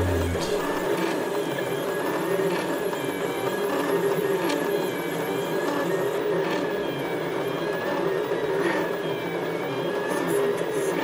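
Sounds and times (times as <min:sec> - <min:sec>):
stepper motors whining: 0:00.0 - 0:01.3
steady whir: 0:00.0 - 0:05.3.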